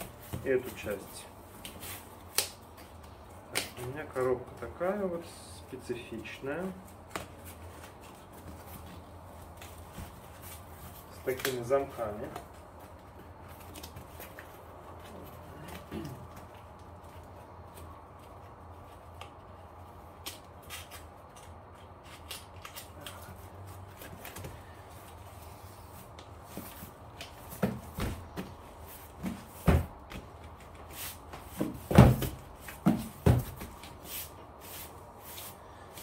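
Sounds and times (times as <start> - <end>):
cardboard box thumps and knocks: 27.5 - 28.6, 29.2 - 30.3, 31.4 - 33.8.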